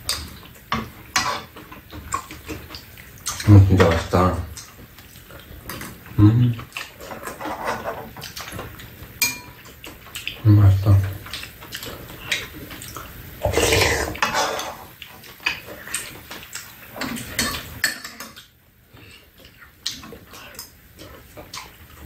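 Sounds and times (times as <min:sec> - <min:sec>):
spoons clinking against bowls: 0:09.2 - 0:09.6.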